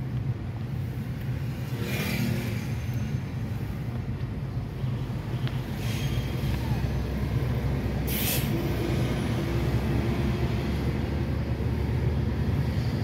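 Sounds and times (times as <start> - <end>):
short sharp hiss: 8.1 - 8.6.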